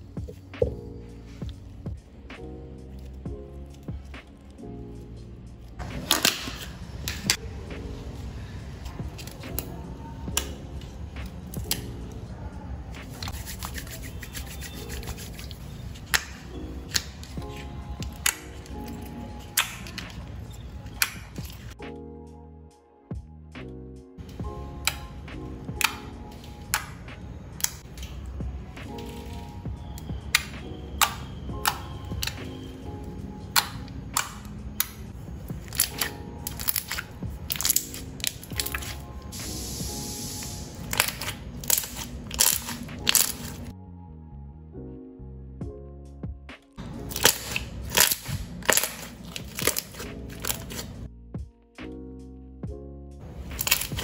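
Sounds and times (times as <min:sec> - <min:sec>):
sticky slime clicks and pops: 0:19.5 - 0:20.2, 0:21.0 - 0:21.6, 0:30.0 - 0:32.4, 0:33.5 - 0:35.0, 0:35.6 - 0:39.0, 0:40.9 - 0:43.6, 0:47.1 - 0:50.8, 0:53.5 - 0:54.0.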